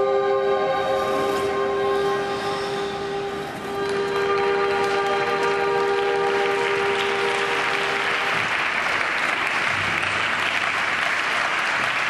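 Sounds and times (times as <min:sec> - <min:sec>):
held music chord: 0:00.0 - 0:08.7
spectators applauding: 0:03.6 - 0:12.0.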